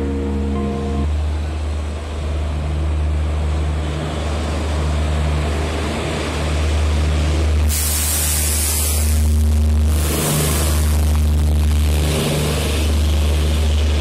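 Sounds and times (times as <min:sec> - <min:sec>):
electric locomotive hum: 0:00.0 - 0:14.0
train wheels rumbling on rail: 0:00.0 - 0:14.0
loud hiss: 0:07.6 - 0:12.8.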